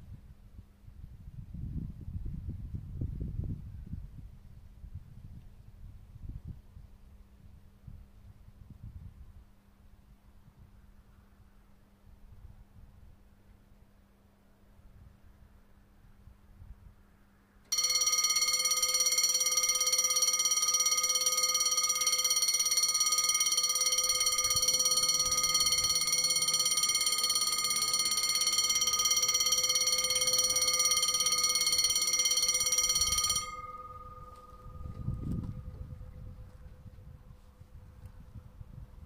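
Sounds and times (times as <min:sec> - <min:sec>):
level crossing bell ringing: 0:17.7 - 0:36.0.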